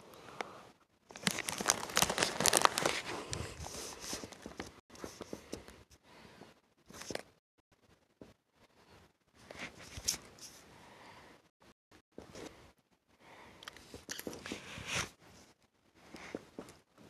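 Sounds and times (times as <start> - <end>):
paper crinkling and tearing: 1.1 - 4.7.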